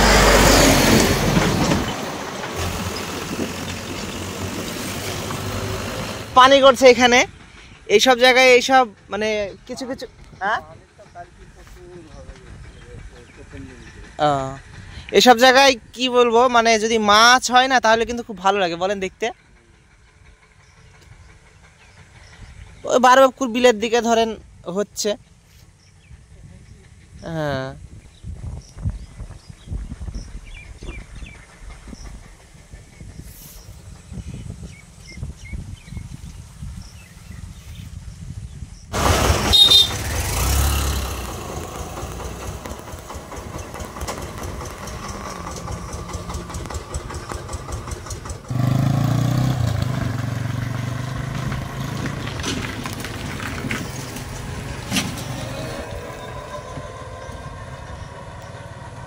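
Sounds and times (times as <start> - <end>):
vehicles passing on road: 0.0 - 9.1, 33.8 - 59.0
engine humming: 0.0 - 16.0, 38.9 - 59.0.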